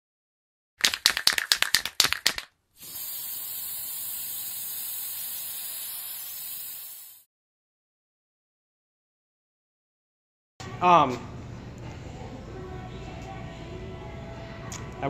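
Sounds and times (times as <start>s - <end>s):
run of sharp clicks: 0.8s - 2.5s
steady hiss: 2.8s - 7.2s.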